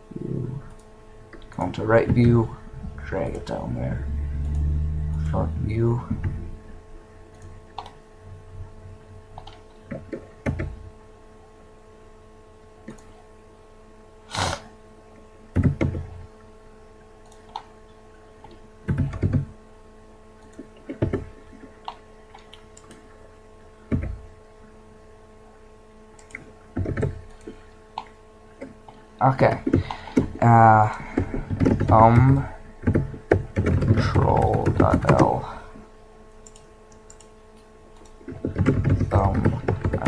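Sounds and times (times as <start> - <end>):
steady electrical hum: 0.0 - 40.0
keyboard keys typing: 15.6 - 16.1, 18.9 - 19.5, 26.2 - 28.7, 29.3 - 35.4, 38.0 - 40.0.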